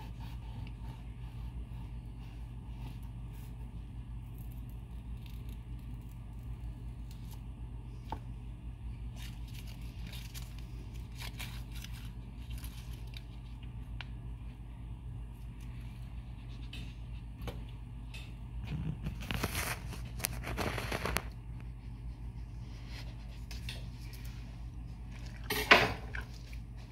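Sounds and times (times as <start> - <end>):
steady low hum: 0.0 - 26.9
crinkly food wrapping: 4.0 - 8.1, 8.9 - 14.2, 18.6 - 25.6.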